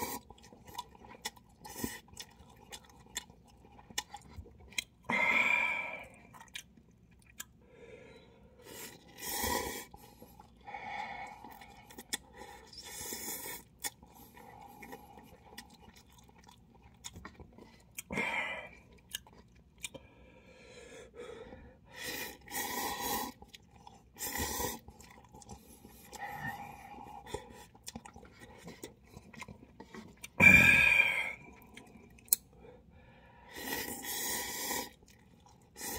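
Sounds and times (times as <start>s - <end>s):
chewing and wet mouth clicks: 0.2s - 5.0s, 6.2s - 7.6s, 11.4s - 18.1s, 18.8s - 20.0s, 23.3s - 30.4s, 31.5s - 32.6s
person slurping noodles: 33.5s - 35.0s.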